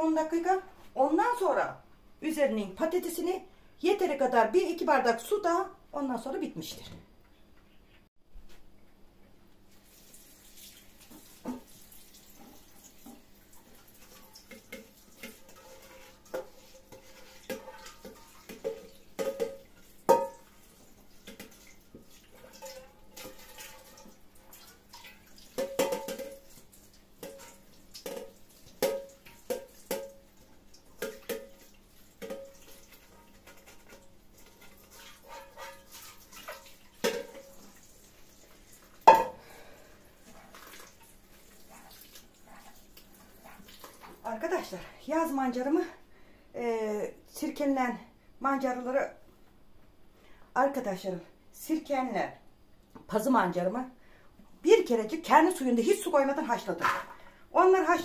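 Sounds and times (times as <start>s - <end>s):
pots and dishes clinking: 14.0s - 30.4s, 31.0s - 37.8s, 39.0s - 39.7s.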